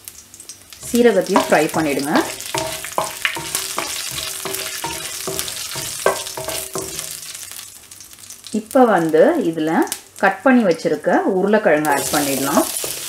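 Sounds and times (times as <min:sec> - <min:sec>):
seeds sizzling in hot oil: 0:00.0 - 0:10.4, 0:11.8 - 0:13.0
spoon tapping a ringing pan: 0:00.8 - 0:07.2.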